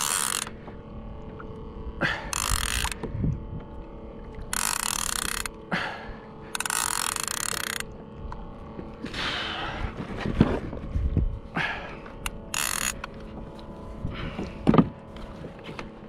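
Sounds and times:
fishing reel ratcheting: 0.0 - 5.7, 6.4 - 8.6, 12.1 - 13.6.

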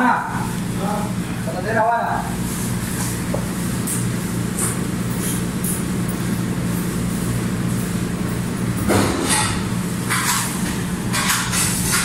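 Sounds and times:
kitchen machinery hum: 0.0 - 12.0.

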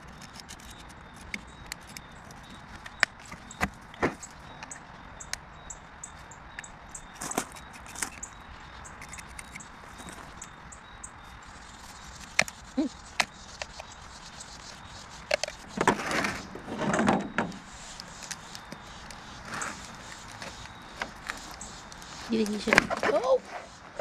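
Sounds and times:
rasping scrapes: 11.5 - 24.0.

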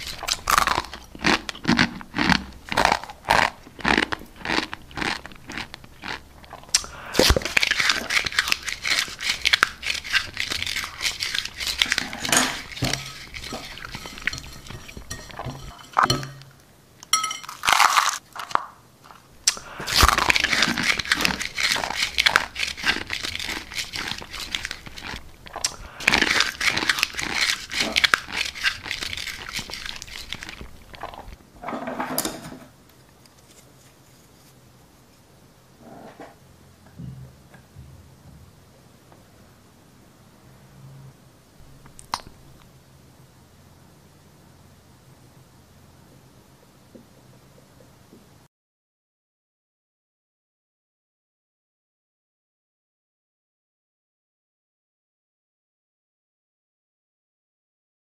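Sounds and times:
crunching dry noodles: 0.0 - 16.1, 17.4 - 31.4.

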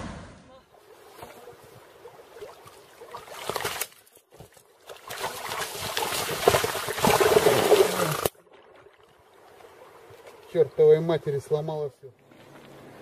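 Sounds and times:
fish thrashing and splashing water: 1.9 - 10.4.

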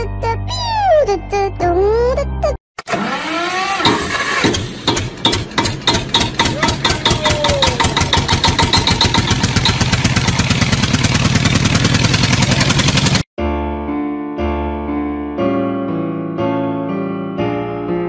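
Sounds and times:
engine starting and revving: 2.8 - 13.2.

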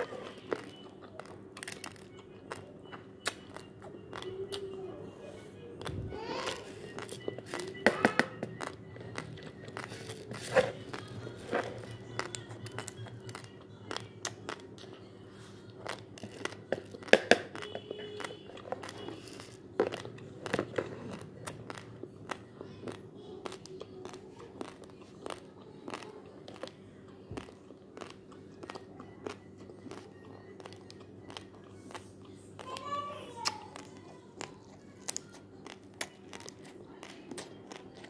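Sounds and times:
crunching raw rice: 8.4 - 32.0.

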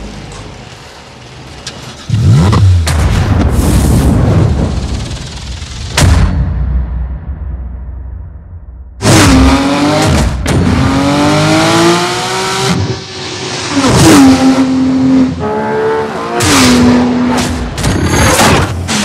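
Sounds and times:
car engine revving through gears: 1.8 - 2.9, 9.0 - 19.0.

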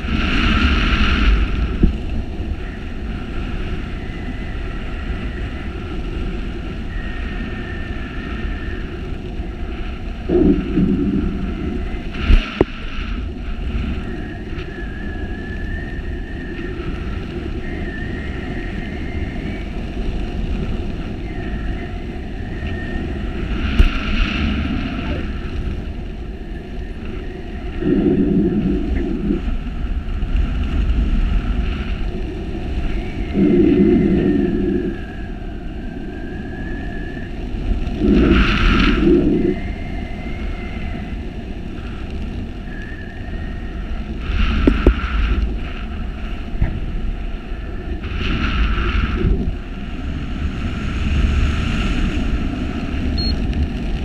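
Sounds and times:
wind rushing over microphone: 0.0 - 54.0
faint wavering whistle: 6.8 - 9.0, 14.0 - 19.9, 21.0 - 23.5, 32.8 - 37.4, 42.6 - 44.2, 53.2 - 53.4.

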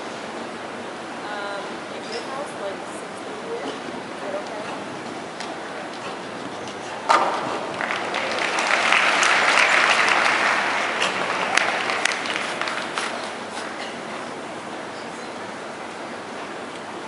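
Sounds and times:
crowd applauding: 6.0 - 14.0.

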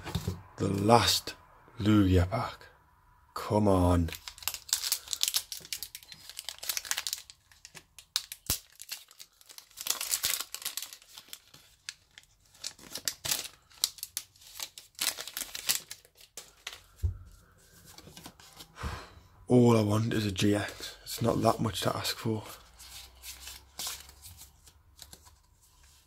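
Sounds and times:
foil wrapper tearing and crinkling: 4.0 - 16.9.

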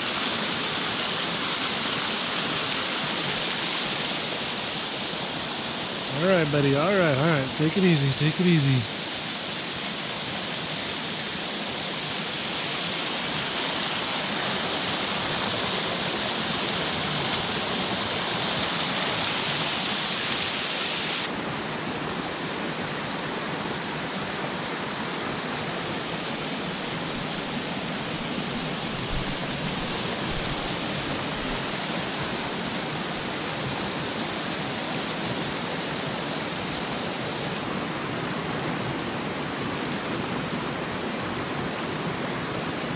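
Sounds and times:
stream rushing over rocks: 0.0 - 42.9.

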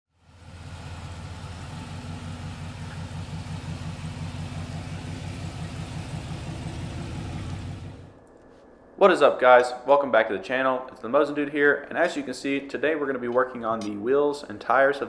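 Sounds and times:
car engine idling: 0.2 - 8.2.

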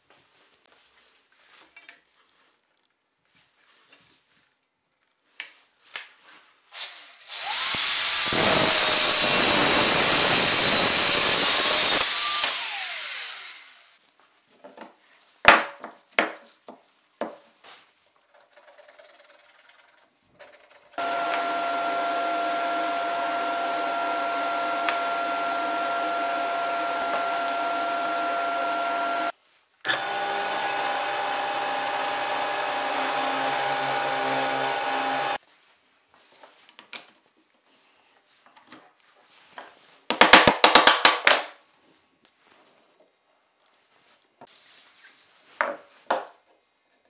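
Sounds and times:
power tool cutting steel: 6.8 - 14.0, 21.0 - 29.3, 29.9 - 35.4.

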